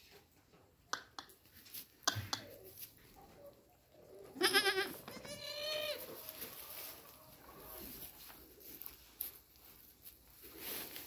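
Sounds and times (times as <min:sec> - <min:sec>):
goat kid bleating: 0:04.3 - 0:06.5.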